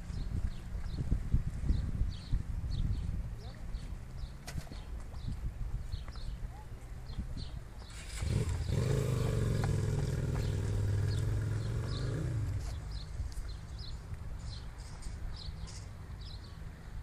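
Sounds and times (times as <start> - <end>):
vehicle engine humming: 7.8 - 15.8.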